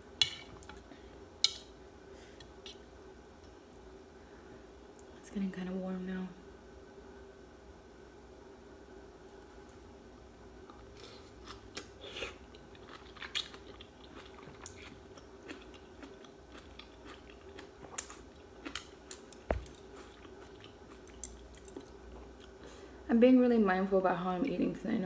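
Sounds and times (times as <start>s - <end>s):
person chewing: 10.7s - 22.6s.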